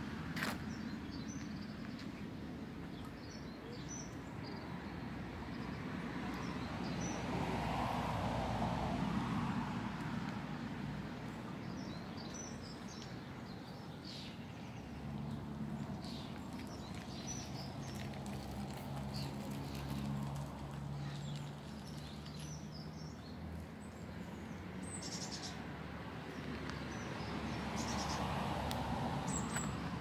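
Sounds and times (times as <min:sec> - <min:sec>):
traffic hum: 0:00.0 - 0:30.0
vehicle passing: 0:05.2 - 0:12.5, 0:14.8 - 0:30.0
small birds chirping: 0:11.2 - 0:20.1, 0:20.8 - 0:25.6.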